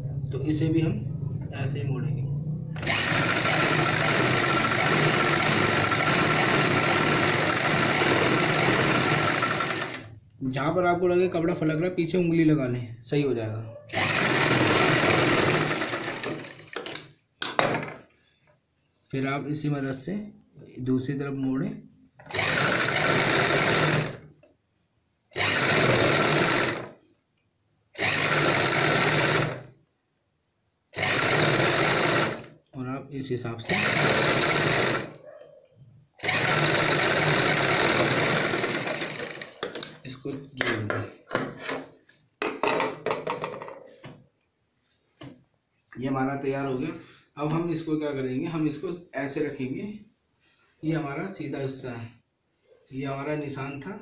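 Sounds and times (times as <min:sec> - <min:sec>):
sewing machine whirring: 0:02.8 - 0:10.2, 0:13.9 - 0:17.0, 0:22.2 - 0:24.3, 0:25.3 - 0:27.0, 0:28.0 - 0:29.7, 0:31.0 - 0:32.6, 0:33.6 - 0:35.2, 0:36.2 - 0:39.9.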